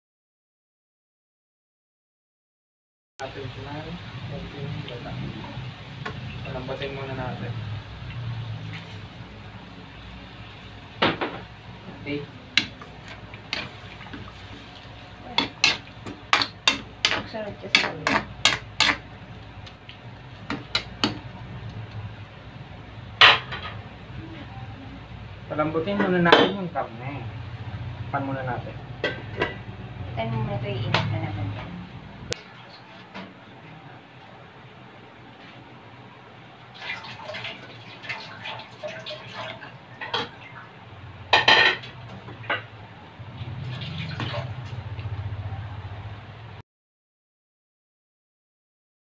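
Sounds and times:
liquid simmering: 0:11.6 - 0:22.8
metal clattering on pan: 0:15.3 - 0:19.0, 0:20.5 - 0:21.2, 0:23.2 - 0:23.8, 0:41.3 - 0:42.7
metal spatula knocking on wok: 0:15.4 - 0:19.0.

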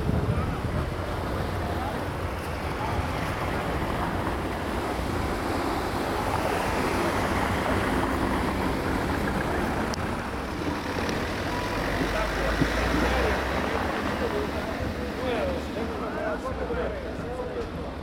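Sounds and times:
wind noise on microphone: 0:00.0 - 0:10.3
outdoor street ambience: 0:00.0 - 0:18.0.

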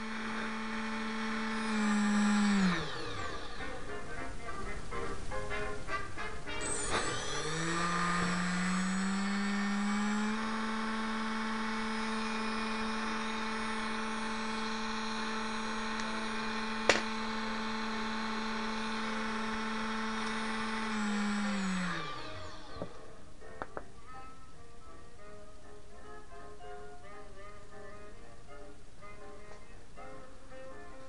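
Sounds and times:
small motor whining: 0:00.0 - 0:23.7.

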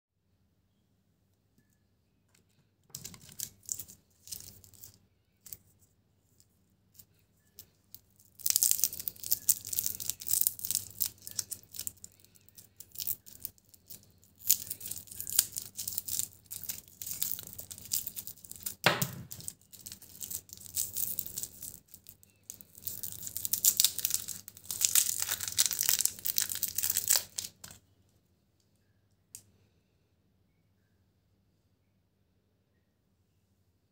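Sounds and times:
plastic wrapper crinkling and tearing: 0:03.0 - 0:05.6, 0:07.0 - 0:27.8
sharp wrapper crack: 0:07.6 - 0:27.8.

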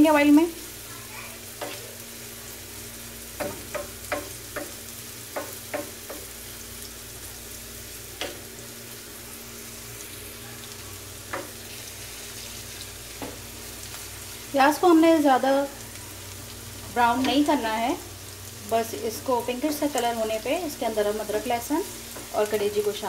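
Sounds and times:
onions sizzling in oil: 0:00.0 - 0:23.0
wooden spatula knocking on pan: 0:03.4 - 0:06.3, 0:11.3 - 0:11.6, 0:13.2 - 0:13.4.

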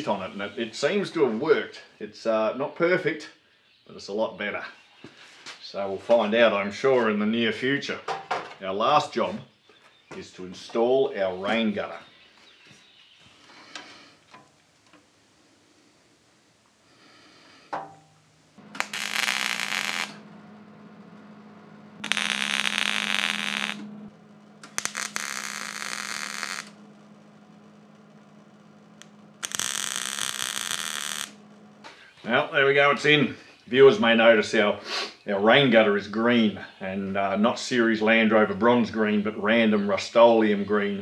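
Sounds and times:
welder crackling: 0:13.4 - 0:33.2
steady low hum: 0:15.3 - 0:34.7.

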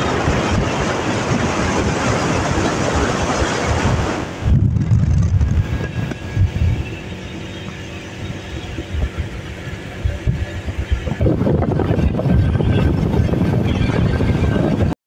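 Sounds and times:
wind buffeting microphone: 0:00.0 - 0:15.0
faint motorcycle engine hum: 0:04.5 - 0:14.7.

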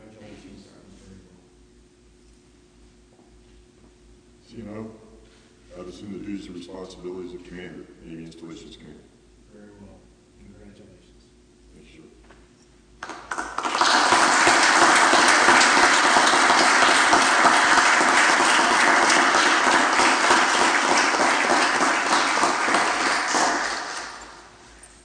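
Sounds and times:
applause: 0:13.0 - 0:24.6.

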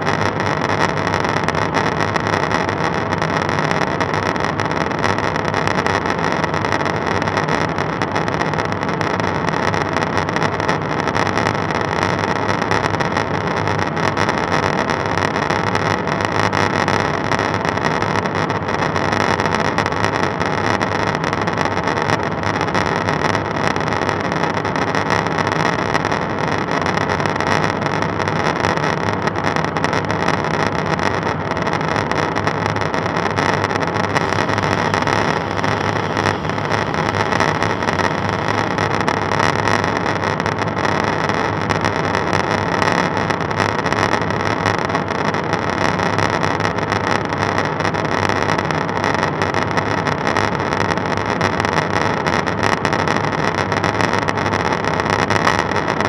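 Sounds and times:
constant hum: 0:31.4 - 0:43.5.

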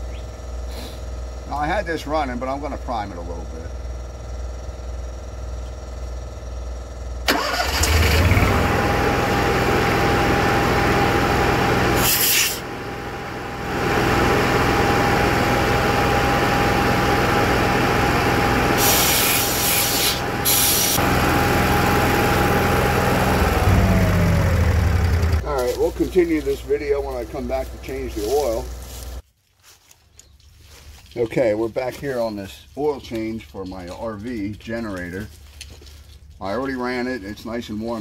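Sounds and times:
compressor hum: 0:00.0 - 0:29.2
generator engine running: 0:00.0 - 0:29.2
compressed air hissing: 0:00.7 - 0:01.1, 0:12.0 - 0:12.6, 0:18.8 - 0:21.0.

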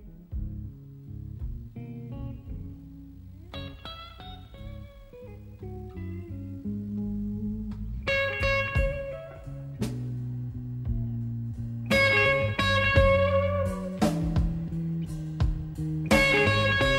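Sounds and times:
electric blues band playing: 0:00.0 - 0:16.9.

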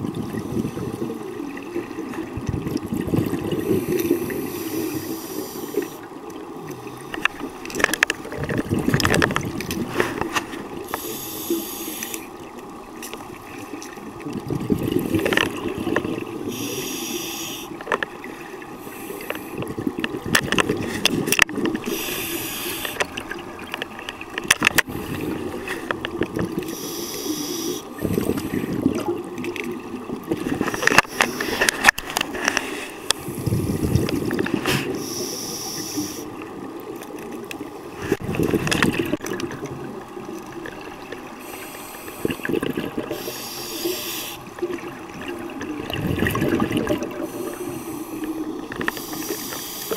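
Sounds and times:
exhaled bubbles gurgling: 0:00.0 - 0:49.9
diver breathing through regulator: 0:03.6 - 0:06.0, 0:09.9 - 0:12.3, 0:16.4 - 0:17.8, 0:21.8 - 0:23.0, 0:26.7 - 0:28.8, 0:30.6 - 0:33.9, 0:34.6 - 0:36.3, 0:41.4 - 0:44.5, 0:47.1 - 0:49.9.

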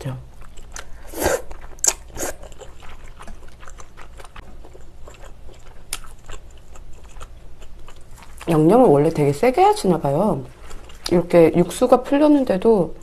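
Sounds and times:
soft wet chewing: 0:00.0 - 0:09.3, 0:10.0 - 0:11.8
slurping noodles: 0:01.0 - 0:02.5.

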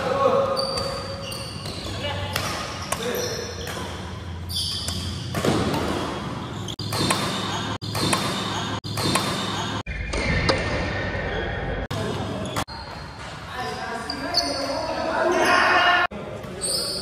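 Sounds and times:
rackets hitting shuttlecock: 0:00.8 - 0:10.7.

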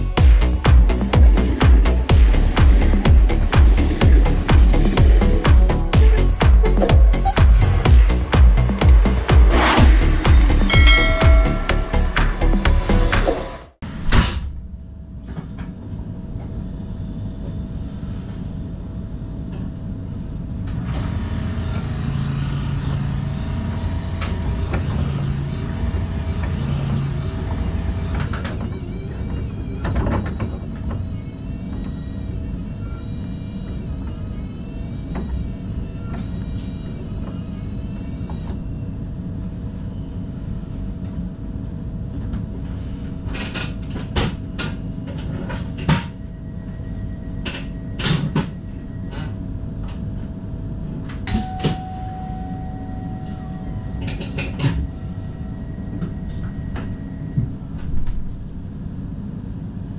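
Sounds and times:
electric train rumble and hum: 0:00.0 - 0:59.9
short tones: 0:10.4 - 0:13.7.

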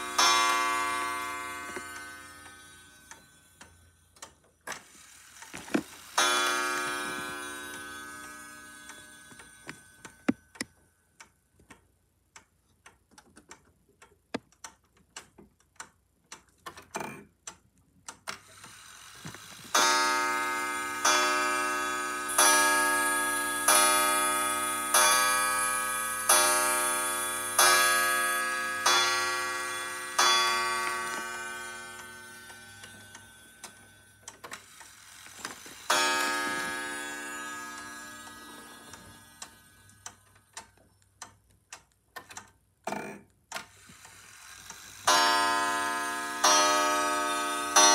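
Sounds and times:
clock chime striking: 0:00.0 - 0:03.6, 0:06.2 - 0:10.4, 0:19.8 - 0:34.3, 0:35.8 - 0:40.0, 0:45.1 - 0:47.9
wall clock ticking: 0:00.0 - 0:18.9, 0:19.7 - 0:42.6, 0:43.6 - 0:47.9.

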